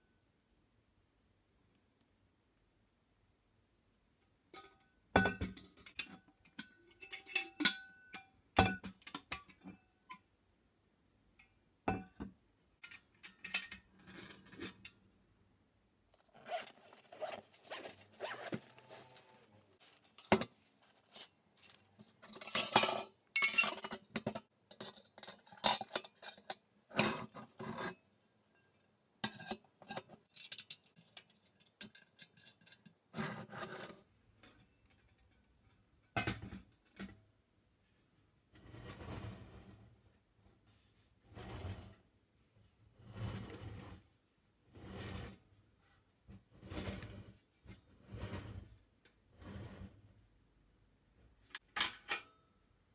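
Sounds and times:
zipper zipping: 16.2s - 19.5s
bag rustling: 16.2s - 21.9s.

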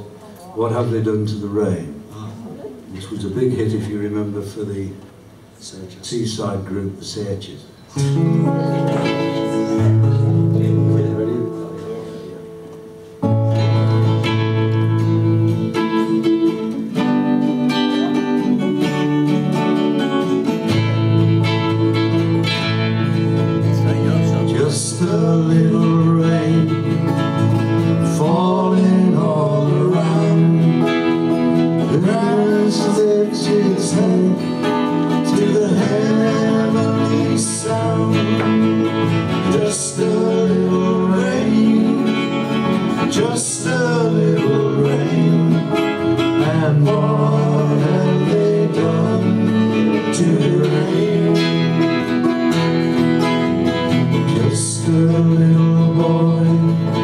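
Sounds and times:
acoustic guitars playing: 0.0s - 57.0s
man singing: 23.6s - 52.4s, 54.1s - 57.0s.

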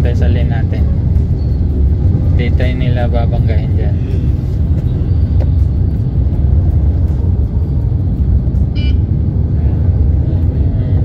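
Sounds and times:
car engine and road noise: 0.0s - 11.0s
high beep: 8.7s - 9.1s.

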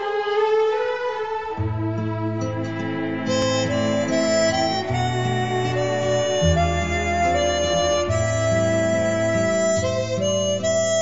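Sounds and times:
slow instrumental melody: 0.0s - 11.0s
low bass note: 1.9s - 10.7s.

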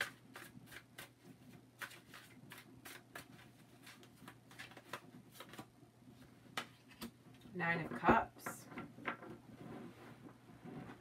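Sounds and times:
cards being shuffled: 0.0s - 5.7s.

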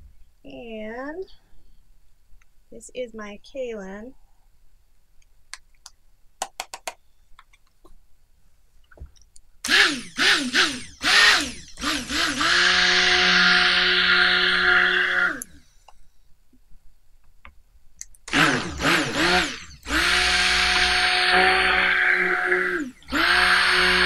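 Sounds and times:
stick blender mixing: 9.7s - 15.6s, 18.3s - 24.0s.

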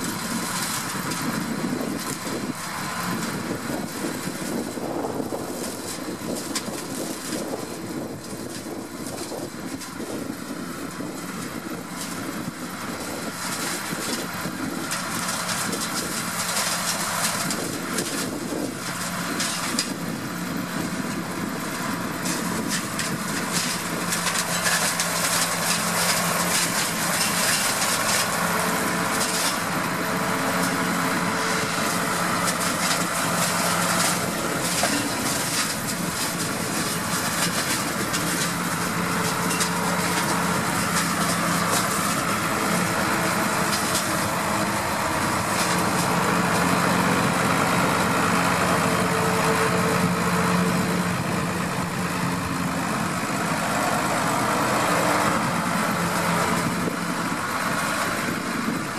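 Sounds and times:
tractor diesel engine: 0.0s - 58.9s
hedge cutter chopping branches: 11.0s - 20.2s, 22.2s - 51.0s.

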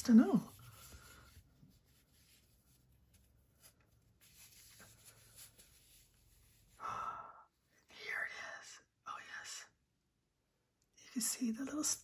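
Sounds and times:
cloth rustling: 0.0s - 6.8s.

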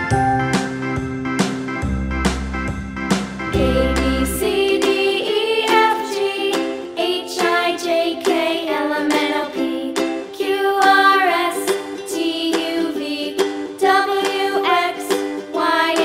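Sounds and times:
melodic background music: 0.0s - 8.6s.

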